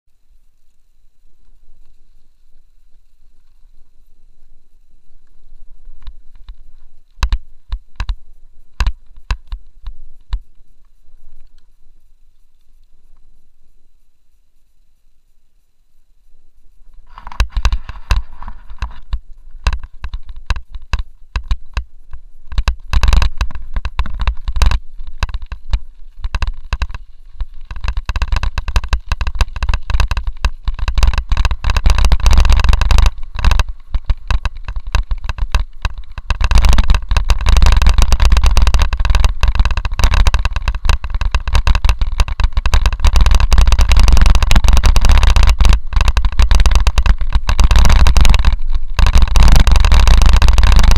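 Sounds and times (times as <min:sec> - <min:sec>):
bike rattling over stones: 0:00.1 - 0:13.5, 0:16.8 - 0:50.9
wind buffeting microphone: 0:16.8 - 0:50.9.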